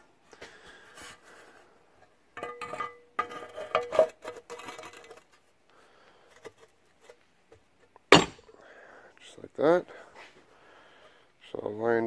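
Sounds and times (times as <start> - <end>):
metal clinking and scraping: 2.4 - 5.4.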